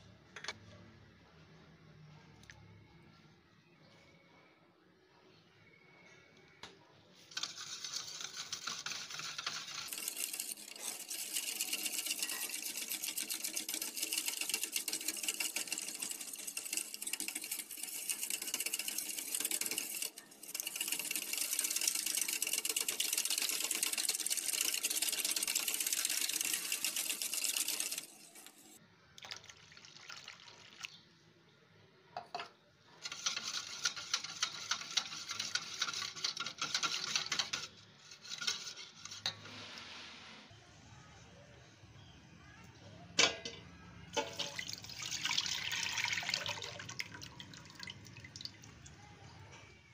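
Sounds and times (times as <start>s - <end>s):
whisk clicking against metal bowl: 7.3s - 28.6s, 32.3s - 39.4s.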